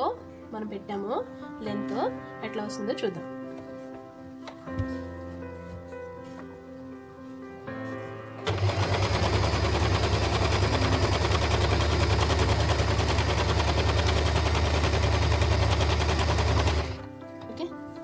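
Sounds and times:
background music: 0:00.0 - 0:18.0
sewing machine running fast: 0:08.4 - 0:17.0.

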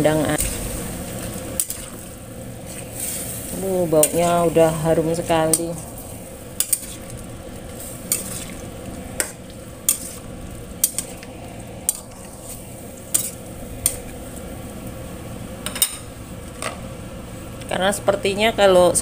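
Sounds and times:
simmering pot sizzling: 0:00.0 - 0:19.0
spatula scraping metal wok: 0:07.7 - 0:08.6, 0:09.2 - 0:11.3.

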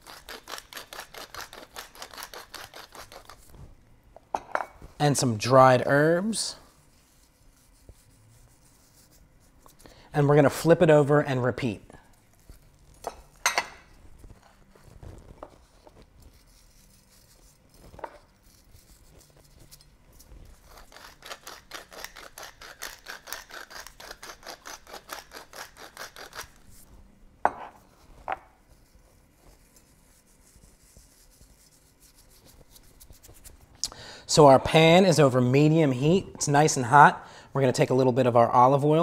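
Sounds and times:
pepper mill grinding: 0:00.0 - 0:03.4, 0:16.4 - 0:26.6.

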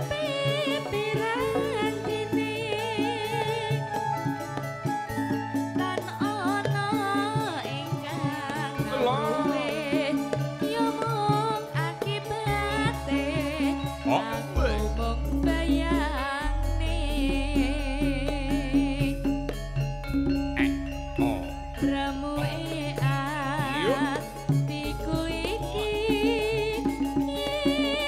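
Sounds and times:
metallophone tones: 0:00.0 - 0:28.0
wavering gliding melody line: 0:00.0 - 0:28.0
deep low notes: 0:14.5 - 0:24.4.

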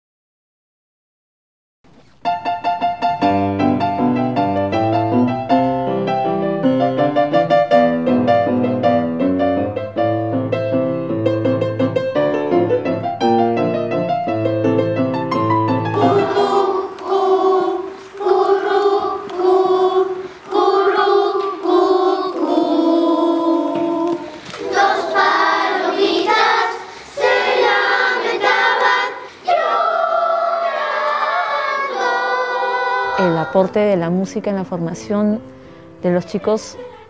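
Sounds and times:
children's choir singing: 0:15.7 - 0:33.9.

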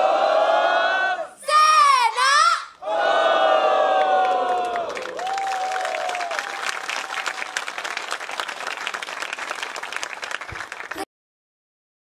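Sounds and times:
audience applauding: 0:03.9 - 0:11.1.

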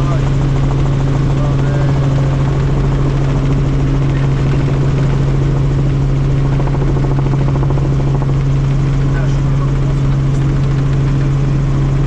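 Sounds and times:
helicopter rotor and engine drone: 0:00.0 - 0:12.0.

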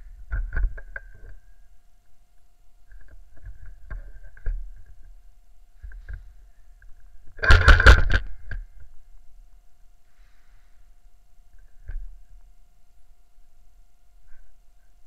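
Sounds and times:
sharp clicks and knocks: 0:00.2 - 0:01.4, 0:05.8 - 0:08.6
camera handling rubbing and bumping: 0:06.9 - 0:08.3.

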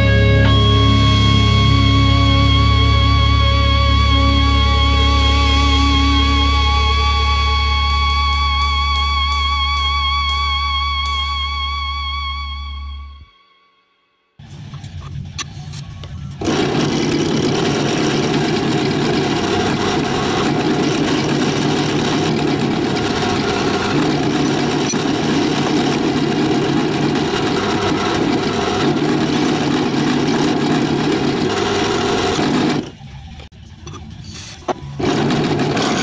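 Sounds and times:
drill press drilling metal: 0:16.4 - 0:33.0, 0:33.9 - 0:36.0.

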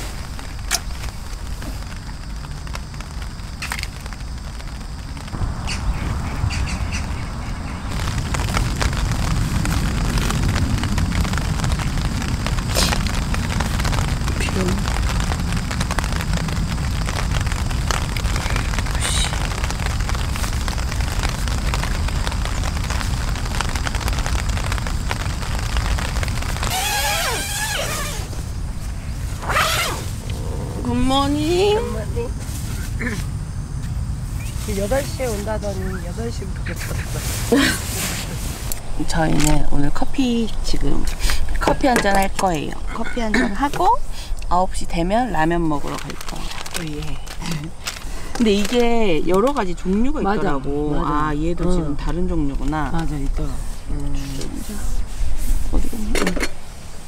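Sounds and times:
steady low rumble: 0:00.0 - 0:26.8, 0:27.8 - 0:57.0
rain pattering on tent fabric: 0:00.0 - 0:57.0
tent zipper pulled open: 0:26.6 - 0:28.4, 0:29.3 - 0:31.1.

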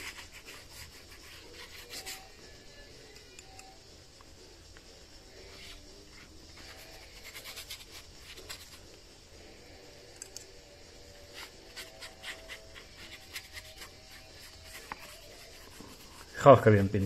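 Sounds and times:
paintbrush scratching on card: 0:00.0 - 0:02.4, 0:05.5 - 0:08.9, 0:11.2 - 0:17.0.

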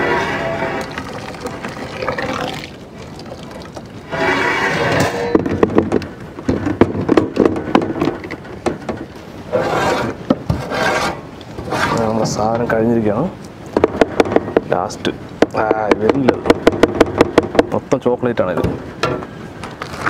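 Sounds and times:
spoon scraping metal plate: 0:04.1 - 0:05.3.

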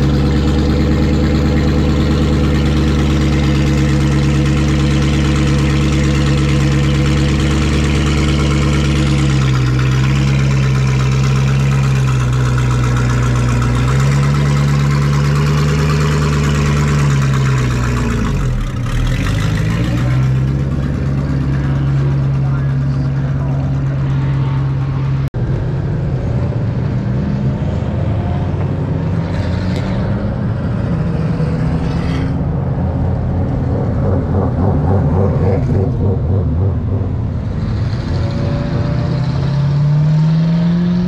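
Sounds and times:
race car engine idling: 0:00.0 - 0:25.4, 0:32.4 - 0:38.2.

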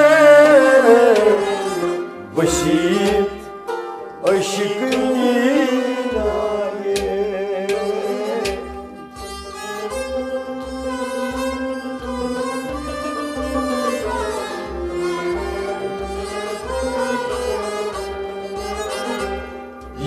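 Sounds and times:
man singing with vibrato: 0:00.0 - 0:03.5, 0:04.2 - 0:08.9
harmonium chords: 0:00.0 - 0:20.0.

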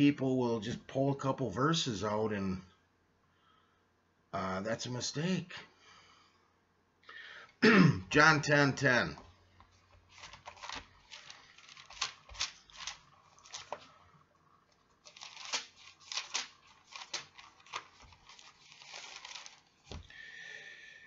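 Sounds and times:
pages turning: 0:09.7 - 0:14.1, 0:14.7 - 0:20.1.

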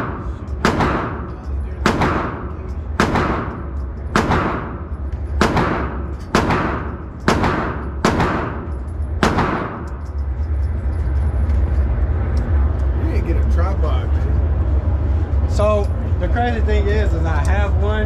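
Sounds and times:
gunshots with echo: 0:00.0 - 0:10.0
steady low rumble: 0:00.0 - 0:18.0.

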